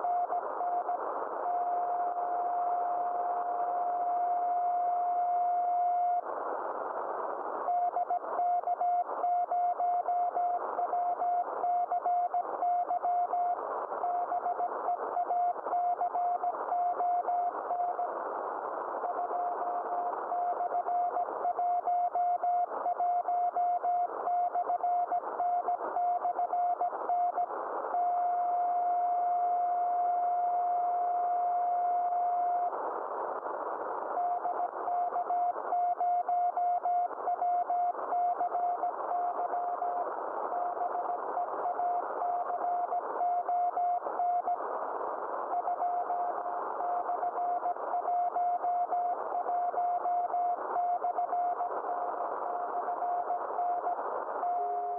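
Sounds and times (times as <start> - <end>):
radio band noise hiss: 0.0 - 54.9.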